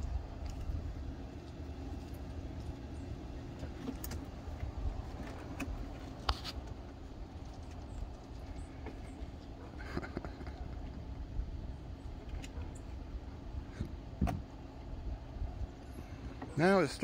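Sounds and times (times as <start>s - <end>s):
wind buffeting microphone: 10.7s - 15.8s.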